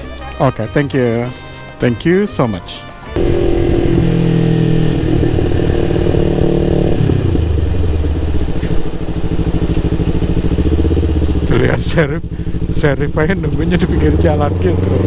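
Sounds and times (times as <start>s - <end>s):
motorcycle engine running: 3.1s - 15.0s.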